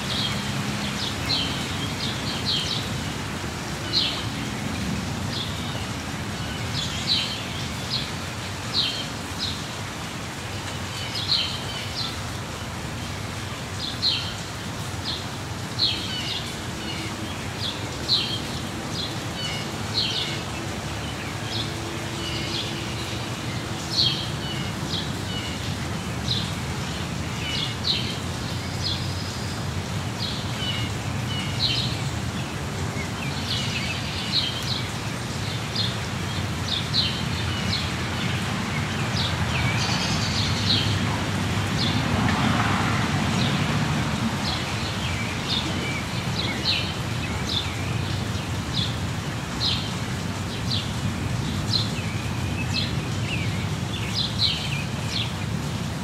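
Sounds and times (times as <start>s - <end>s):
steady rain falling: 0.0s - 56.0s
small birds chirping: 44.4s - 55.8s.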